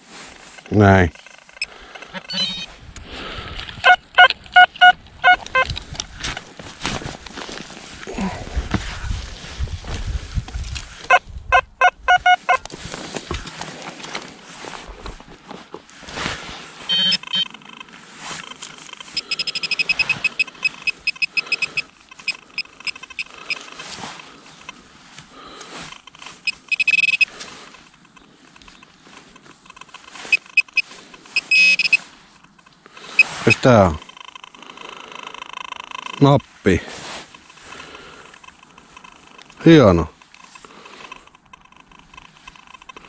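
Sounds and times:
metal detector beeping: 0.4 - 2.8, 3.8 - 5.8, 11.0 - 12.7, 16.9 - 24.8, 25.9 - 43.0.

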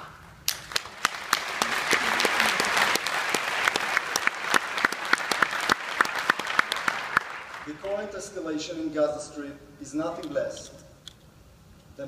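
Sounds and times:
audience applauding: 0.5 - 7.8.

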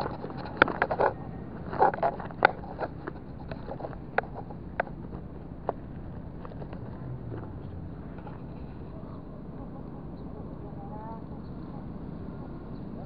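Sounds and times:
handling clicks and knocks: 0.0 - 8.5.

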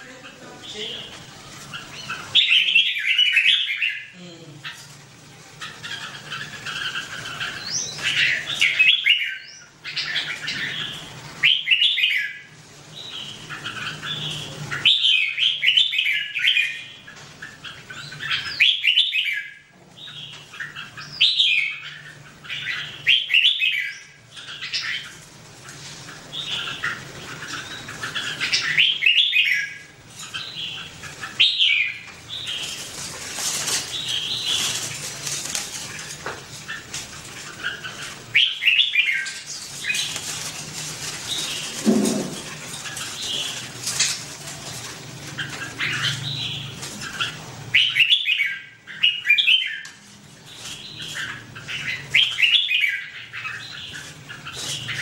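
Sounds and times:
birds chattering calls: 0.0 - 55.0.

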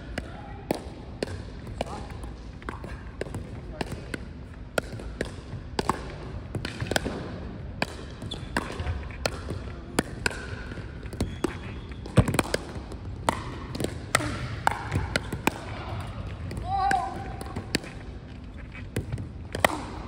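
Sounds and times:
paddles striking plastic ball: 0.2 - 18.0
ball bouncing on wooden floor: 7.8 - 15.6.

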